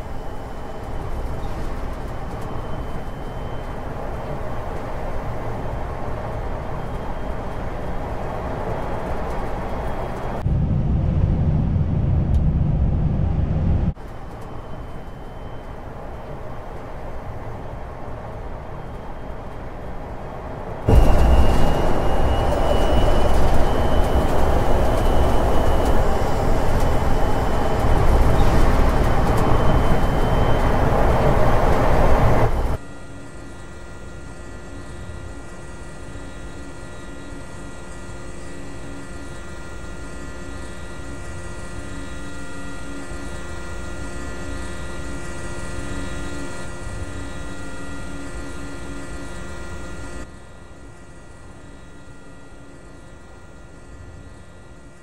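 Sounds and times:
faint high whine: 0.0 - 55.0
steady hum of held tones: 0.0 - 55.0
truck tyre and road noise: 15.8 - 32.8.

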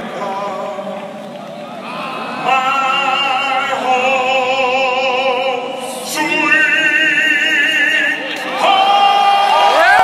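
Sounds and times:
operatic singer over loudspeakers: 0.0 - 10.0.

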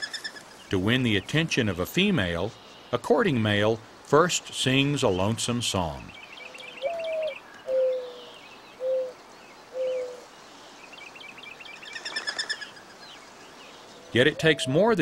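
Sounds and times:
small birds chirping faintly: 0.0 - 15.0
mourning dove cooing: 6.4 - 10.3, 13.9 - 15.0.

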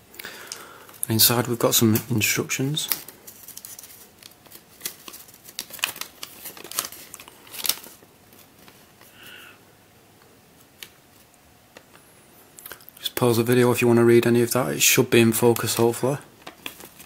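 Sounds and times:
paper crinkling: 2.6 - 9.2, 15.6 - 17.0.

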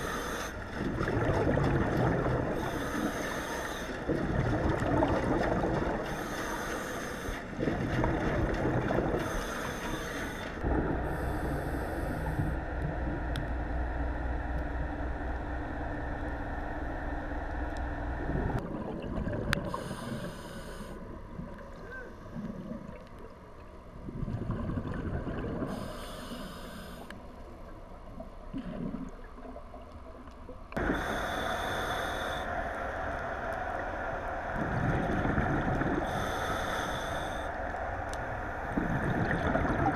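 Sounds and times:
low steady hum: 0.0 - 39.9
bubbling exhalations: 0.8 - 3.0, 38.8 - 39.9
regulator hissing inhalation: 25.7 - 27.1, 30.8 - 32.5, 36.0 - 37.5.

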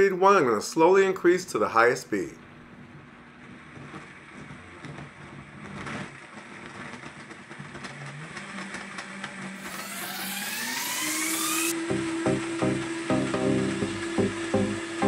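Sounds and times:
blender motor whining: 8.5 - 15.0.

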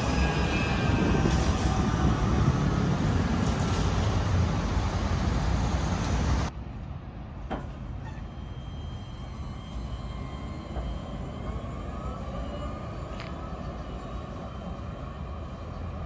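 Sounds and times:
city street traffic: 0.0 - 16.0
electric tram rolling on rails: 0.0 - 16.0
faint high whine: 7.8 - 15.8.

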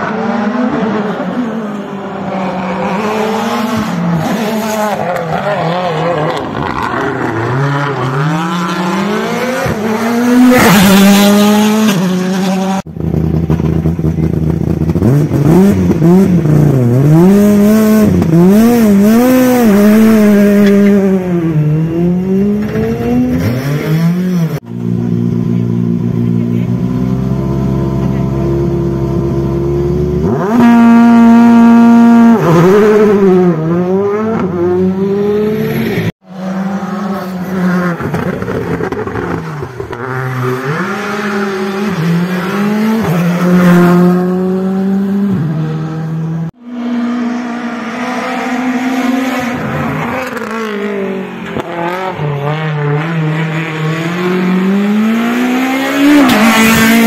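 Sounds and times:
rally car engines accelerating: 0.0 - 57.0.

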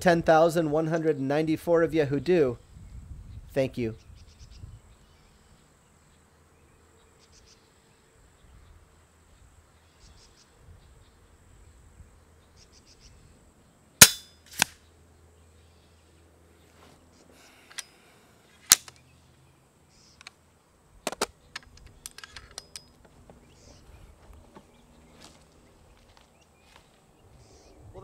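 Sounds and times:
faint insect chirps: 4.0 - 14.0, 17.2 - 20.8
air rifle crack: 14.0 - 14.8, 17.4 - 19.0.

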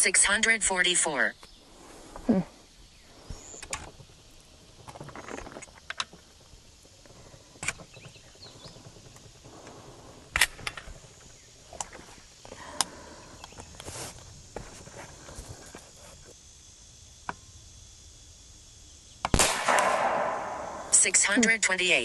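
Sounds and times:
air rifle cocking clicks: 10.3 - 11.0.

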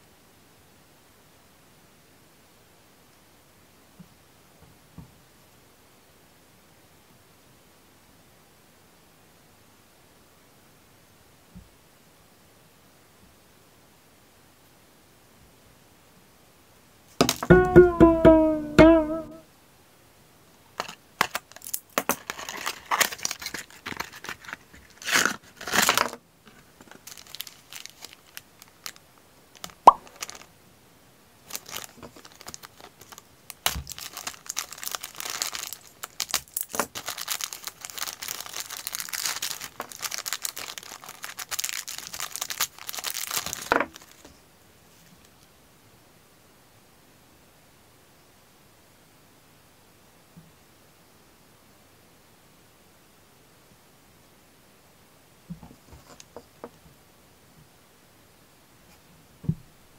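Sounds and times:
wavering musical sound effect: 17.5 - 19.4
plastic bag crinkling: 20.8 - 29.0, 29.6 - 30.5, 31.4 - 44.3.

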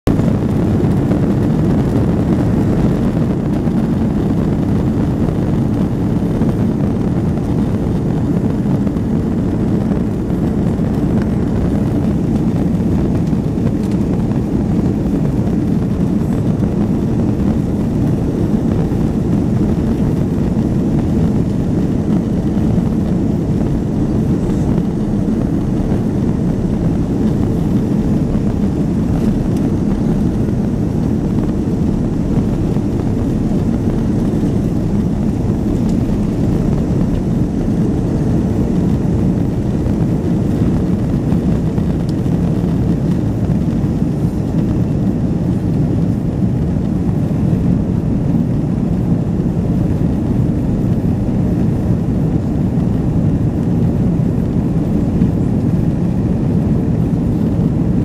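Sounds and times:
jet engines low rumble: 0.0 - 58.0.

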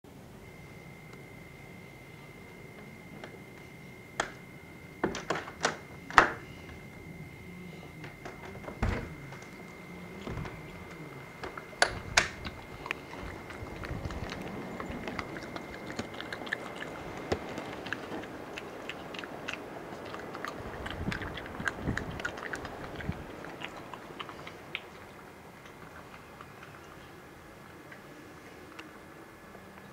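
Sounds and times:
badger crunching dry food: 7.8 - 29.0.

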